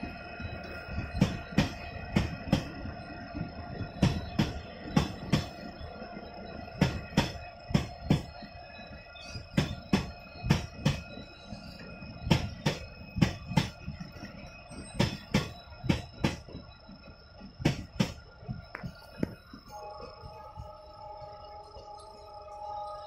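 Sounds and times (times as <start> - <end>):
wheels clicking over rail joint: 0.0 - 5.8
train coaches passing: 0.0 - 23.0.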